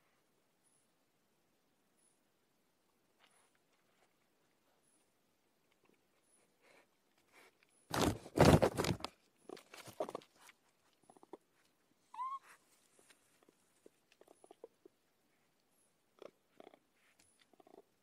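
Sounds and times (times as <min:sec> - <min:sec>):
crackles and knocks: 0:07.9 - 0:11.4.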